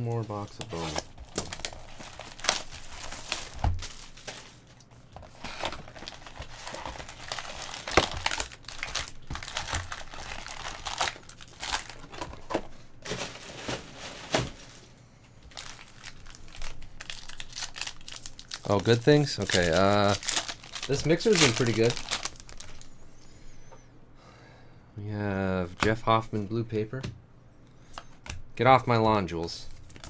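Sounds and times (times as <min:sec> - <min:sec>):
packaging crinkling and tearing: 0:00.1 - 0:14.8, 0:15.4 - 0:23.0, 0:29.7 - 0:30.0
sharp packaging snaps: 0:06.8 - 0:12.0.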